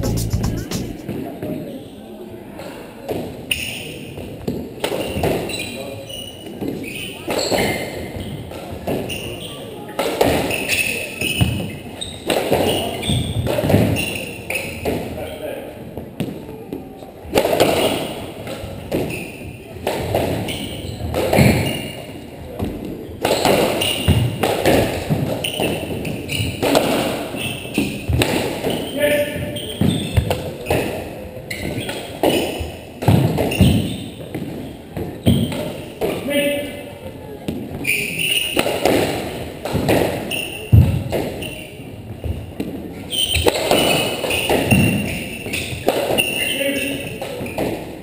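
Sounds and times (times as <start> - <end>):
racquets striking squash ball: 17.3 - 22.0, 22.6 - 36.2, 37.5 - 41.6, 42.2 - 48.0.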